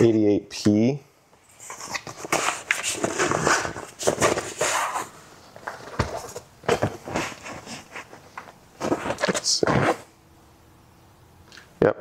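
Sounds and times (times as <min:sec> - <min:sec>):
plastic and rubber rubbing: 0:01.5 - 0:10.1.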